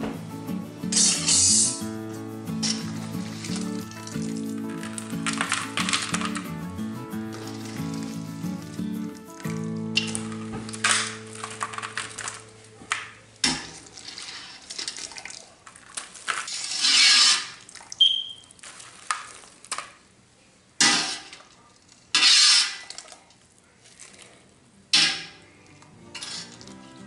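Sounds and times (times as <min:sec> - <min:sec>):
water splashing and dripping: 0:13.5 - 0:16.4.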